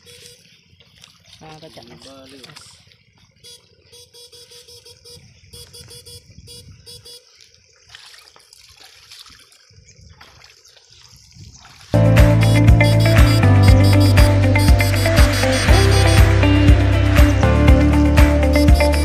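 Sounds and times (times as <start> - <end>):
loud music: 12.0 - 19.0
electric shocker buzzing in pulses: 12.2 - 19.0.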